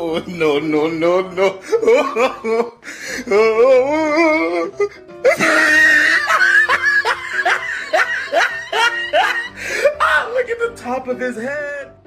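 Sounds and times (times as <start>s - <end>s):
music: 0.0s - 12.0s
wobbling laugh-like voice: 5.3s - 9.5s.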